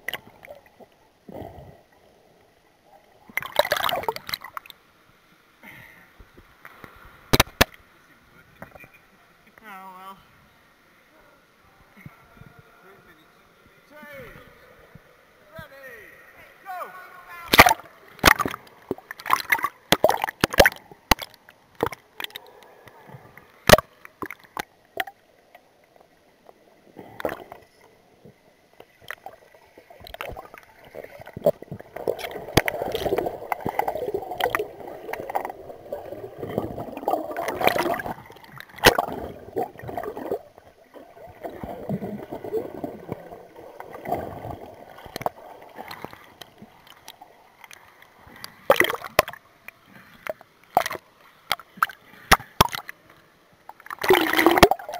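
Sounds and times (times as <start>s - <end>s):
water rushing and gurgling: 0.0s - 9.5s, 13.5s - 54.9s
sharp clicks and knocks underwater: 6.2s - 7.8s, 17.5s - 22.4s, 23.3s - 25.6s, 26.4s - 29.4s, 30.0s - 40.4s, 41.4s - 54.9s.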